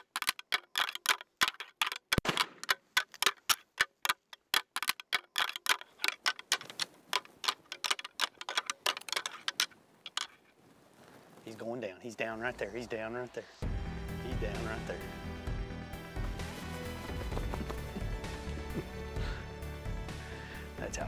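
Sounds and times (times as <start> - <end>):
antlers clacking together: 0.0 - 10.5.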